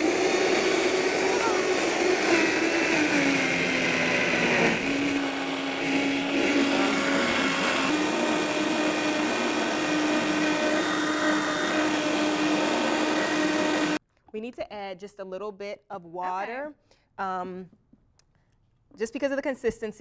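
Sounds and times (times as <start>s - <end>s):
blender motor running: 0.0s - 14.0s.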